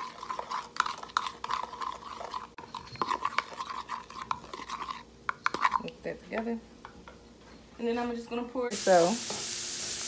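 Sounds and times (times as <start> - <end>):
metal spoon stirring in bowl: 0.0 - 7.0.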